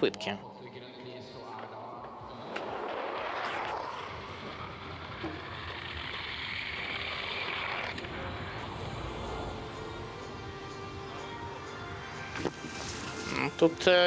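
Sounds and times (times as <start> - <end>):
skis hissing down icy track: 3.1 - 9.9, 12.4 - 13.7.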